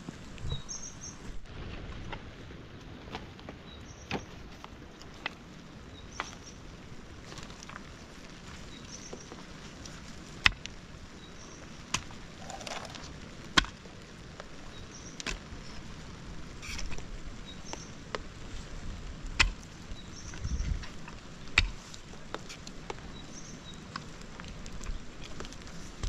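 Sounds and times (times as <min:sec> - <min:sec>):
mattock digging into wet soil: 0:11.9 - 0:13.7.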